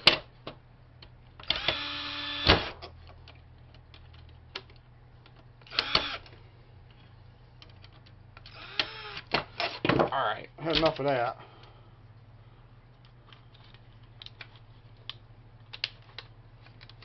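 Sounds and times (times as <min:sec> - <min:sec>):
cordless drill motor whining: 0:01.5 - 0:02.5, 0:05.7 - 0:06.2, 0:08.5 - 0:09.3.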